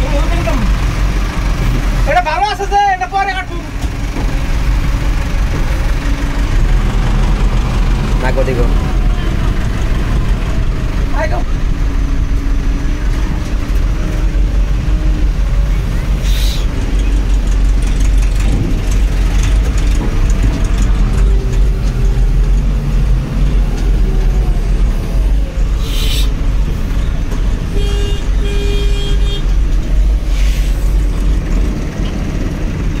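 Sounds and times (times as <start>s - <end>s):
heavy diesel engine running: 0.0s - 33.0s
short hisses: 16.2s - 16.7s, 25.8s - 26.4s, 30.3s - 31.0s.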